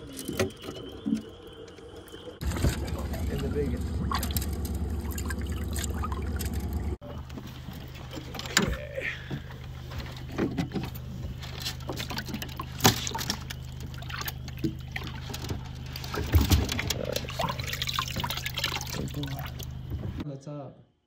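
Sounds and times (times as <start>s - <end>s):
pump hum: 2.4s - 20.2s
fish splashing and knocking: 3.9s - 6.9s, 9.4s - 20.2s.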